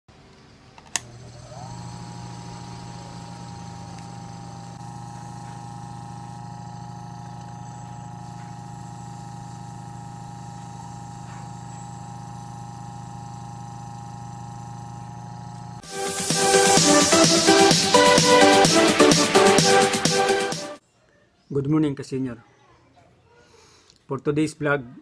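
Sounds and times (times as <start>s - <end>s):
small electric fan motor humming: 0.8s - 19.1s.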